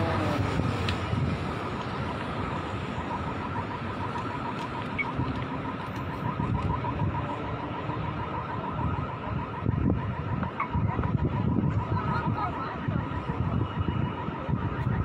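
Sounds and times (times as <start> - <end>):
city street noise: 0.0 - 15.0
crossing signal chirping: 1.4 - 8.2.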